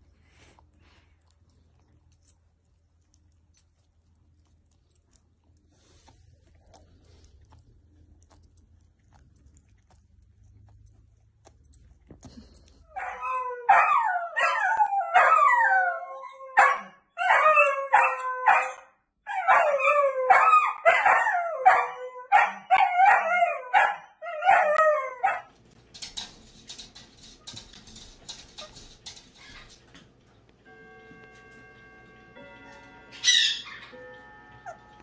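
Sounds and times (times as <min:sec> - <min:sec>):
dog howling and yipping: 0:12.9 - 0:25.5.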